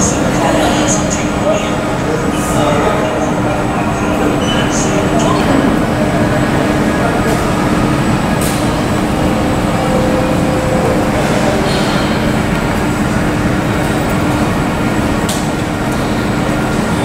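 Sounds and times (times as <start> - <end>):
jet engine rumble: 0.0 - 17.0
thin high whine: 4.0 - 14.8.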